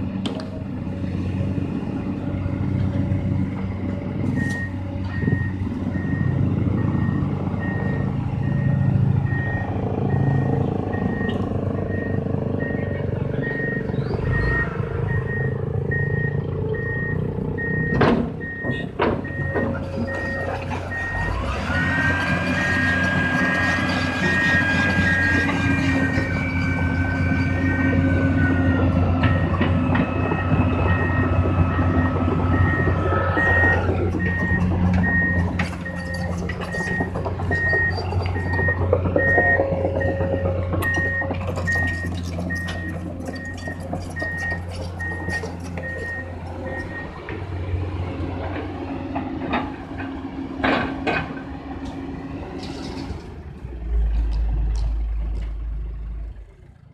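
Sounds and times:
excavator diesel engine running: 0.0 - 56.9
metallic clanks and knocks: 17.9 - 20.8, 48.4 - 52.0
backup alarm beeping: 28.6 - 47.2.

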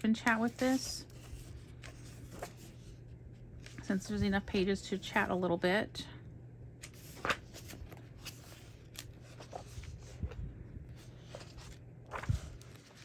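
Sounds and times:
book pages rustling: 0.2 - 4.0, 6.8 - 13.0.

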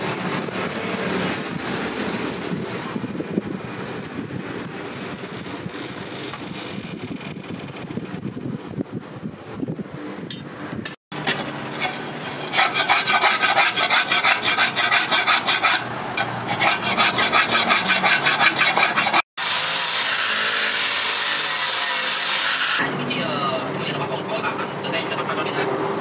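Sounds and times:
metal rasping on steel plate: 11.2 - 22.8.

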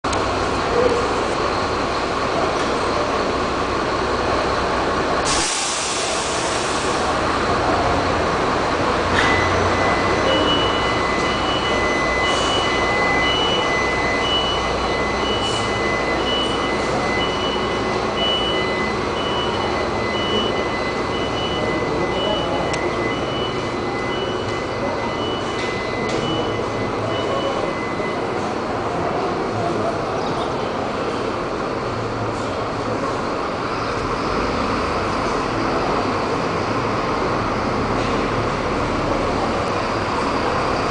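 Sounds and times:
bus diesel engine running: 0.0 - 40.9
compressed air hiss: 5.3 - 7.0
steady high tone: 7.0 - 29.3
short beeps: 9.2 - 28.5.

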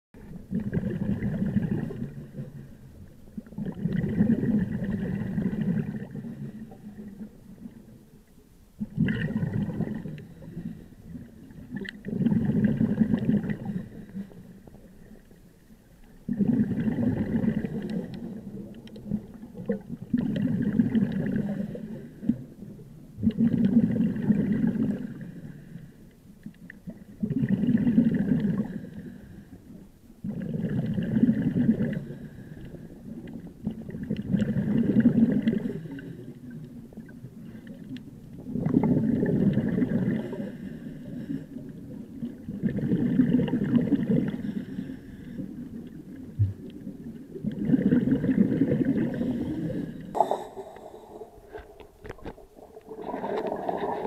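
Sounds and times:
exhaled bubbles gurgling: 0.2 - 25.7, 26.5 - 54.0
diver breathing through regulator: 40.2 - 41.7, 44.3 - 45.6, 49.0 - 52.4.

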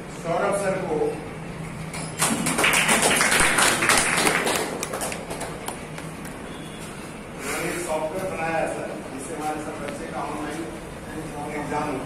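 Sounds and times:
audience clapping: 2.2 - 6.4.

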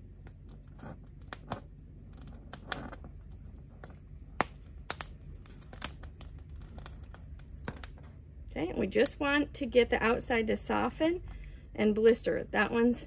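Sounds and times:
low steady hum: 0.0 - 13.0
peppers popping on flame: 0.1 - 8.2.

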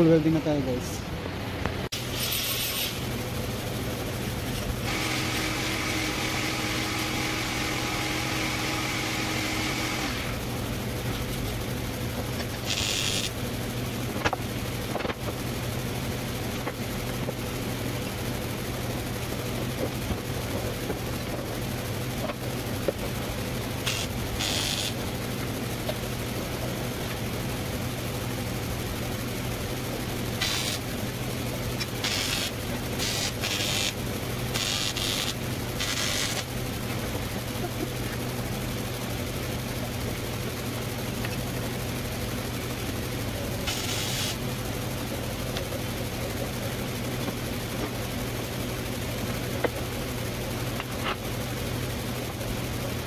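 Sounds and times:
low machine hum: 2.9 - 53.0
welding torch hissing: 12.5 - 13.4, 23.8 - 25.1, 30.2 - 31.2, 31.8 - 36.5, 43.6 - 44.4.

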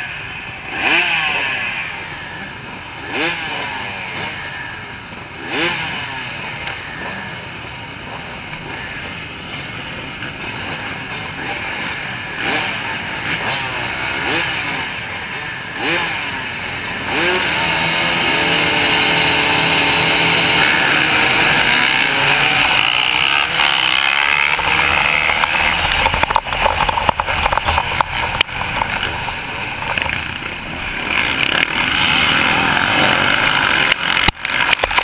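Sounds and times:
motocross bike engines revving: 0.0 - 35.0
sharp knocks and clatter: 21.7 - 35.0.

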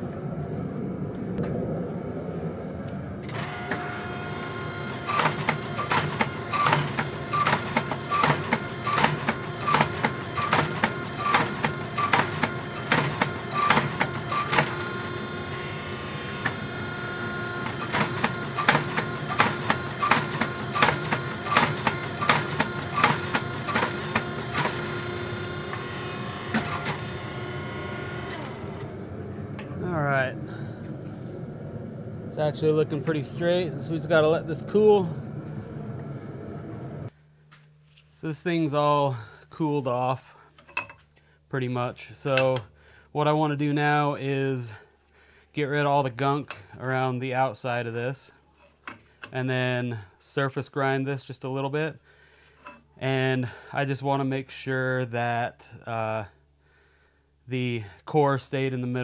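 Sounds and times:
shop machinery hum: 0.0 - 41.0, 41.6 - 44.9, 45.7 - 47.3
hammer striking hot steel: 42.4 - 42.7.

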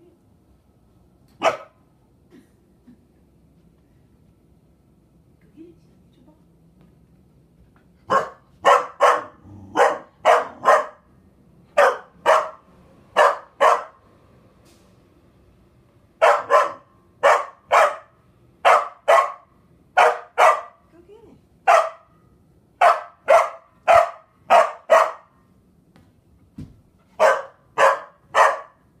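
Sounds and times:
dog barking sharply: 1.4 - 1.8, 8.1 - 11.0, 11.8 - 12.6, 13.2 - 14.0, 16.2 - 20.8, 21.7 - 22.1, 22.8 - 25.3, 27.2 - 28.8.

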